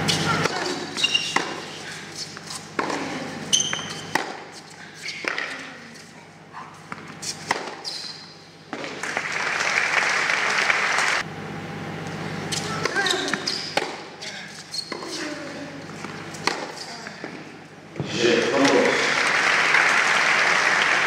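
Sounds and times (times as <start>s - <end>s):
shoe squeaks on hard court: 0.0s - 2.8s, 3.5s - 5.6s, 6.8s - 8.5s, 12.5s - 15.3s
rackets hitting tennis ball: 0.0s - 5.9s, 6.8s - 9.3s, 12.5s - 17.4s
crowd applauding: 9.0s - 11.2s, 18.7s - 21.0s.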